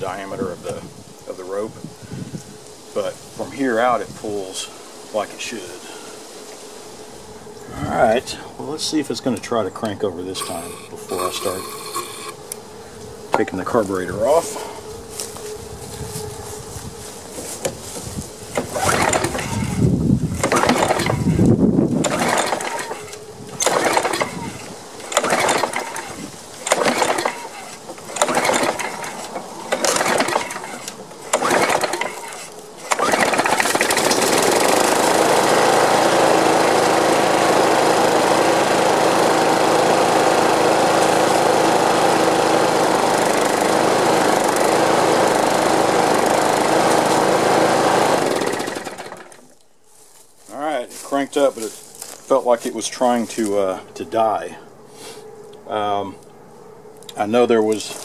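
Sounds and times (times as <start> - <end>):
lawn mower engine running: 0.0 - 54.4, 55.0 - 58.0
recoil starter pulls: 8.8 - 12.6, 17.5 - 49.6.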